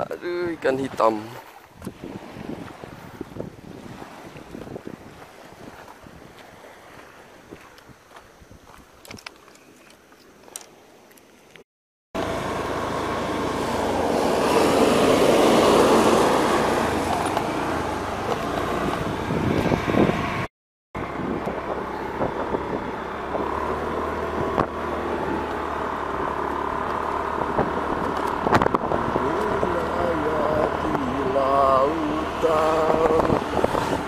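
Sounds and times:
wind rush on microphone: 0.0s - 9.3s, 13.5s - 25.6s, 27.0s - 34.0s
motorcycle engine: 12.2s - 34.0s.

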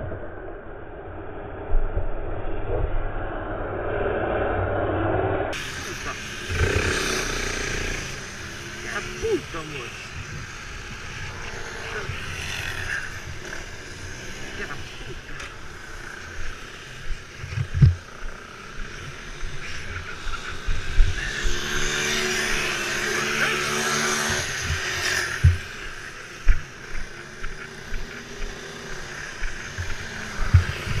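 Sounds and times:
go-kart engines passing: 5.5s - 31.0s
thumps on microphone: 17.5s - 18.0s.

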